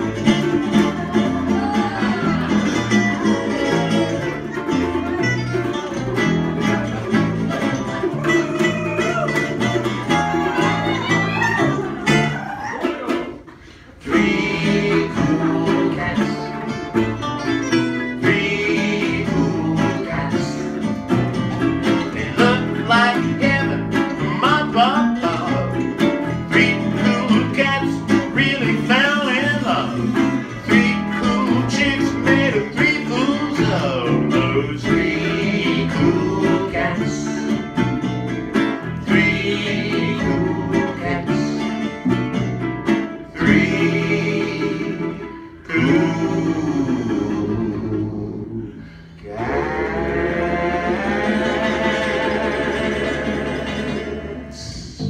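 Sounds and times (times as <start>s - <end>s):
acoustic swing band playing: 0.0s - 55.0s
lead singer with harmony vocals: 14.0s - 16.6s, 18.2s - 20.8s, 30.6s - 37.6s, 39.0s - 41.7s, 43.3s - 55.0s.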